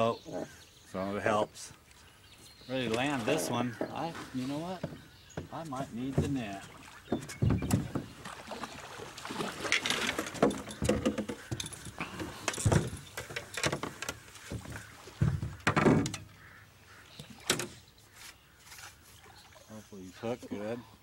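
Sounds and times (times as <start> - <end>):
fishing gear knocking and clunking: 4.8 - 8.2, 9.6 - 16.4, 17.4 - 17.8.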